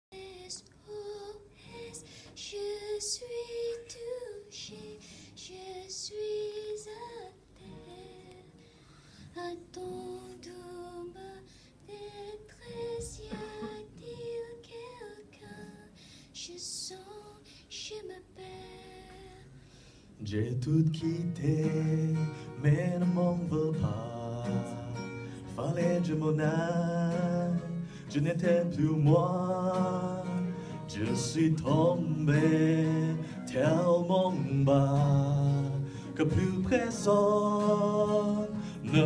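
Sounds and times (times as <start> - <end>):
woman singing softly: 0.1 - 8.6, 9.2 - 19.6.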